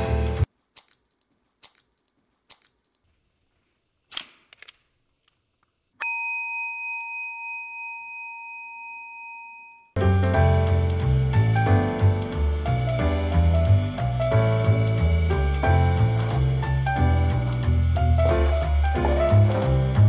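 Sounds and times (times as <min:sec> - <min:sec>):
piano background music: 0:00.0 - 0:00.5, 0:10.0 - 0:20.0
rustly squish: 0:00.5 - 0:05.0
small plastic clicks: 0:00.8 - 0:03.1
bell-like chime: 0:06.0 - 0:10.1.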